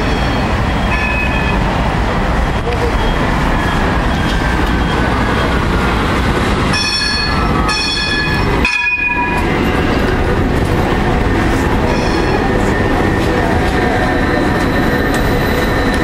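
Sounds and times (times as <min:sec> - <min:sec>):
tram wheels rumbling: 0:00.0 - 0:16.0
high shrill tone: 0:11.8 - 0:13.0.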